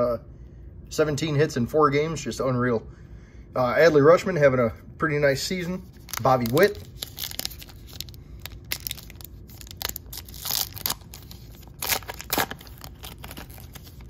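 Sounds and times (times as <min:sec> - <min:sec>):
wrapper tearing and crinkling: 0:05.9 - 0:14.0.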